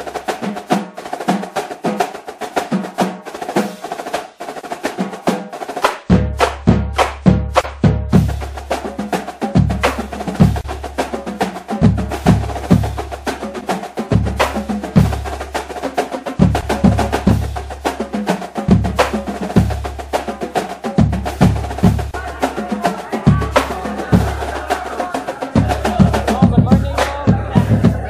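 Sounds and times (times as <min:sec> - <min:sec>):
snare and bass drums: 0:00.0 - 0:28.0
trumpets and trombones: 0:22.1 - 0:28.0.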